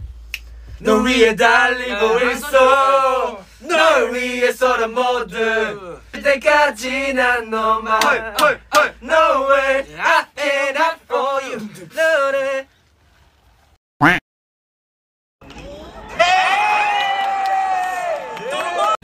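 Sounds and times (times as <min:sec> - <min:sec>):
men singing and chanting: 0:00.8 - 0:12.7.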